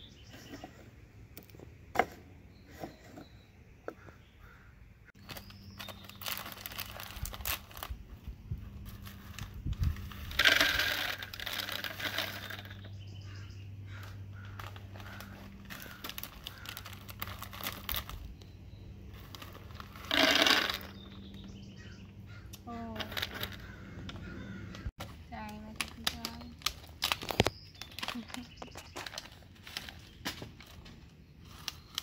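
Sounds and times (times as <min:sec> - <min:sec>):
plastic bag crinkling: 0:05.2 - 0:08.0, 0:08.8 - 0:12.8, 0:14.4 - 0:18.4, 0:19.1 - 0:21.0, 0:25.3 - 0:30.8.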